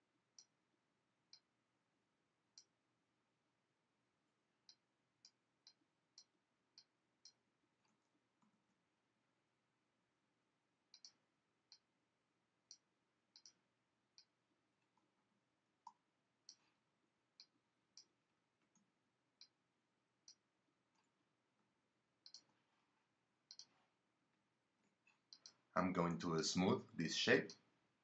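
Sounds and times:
mouse and keyboard clicks: 23.5s - 23.8s.

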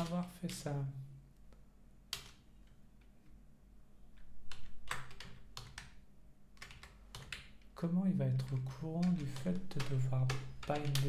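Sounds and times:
computer keyboard keystrokes: 2.1s - 2.8s, 4.2s - 6.0s, 6.6s - 11.0s.

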